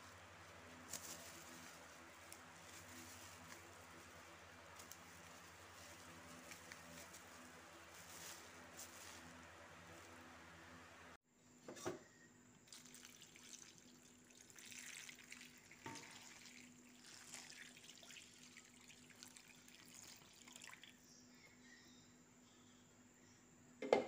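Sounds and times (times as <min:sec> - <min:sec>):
water pouring and splashing: 0:12.6 - 0:21.0.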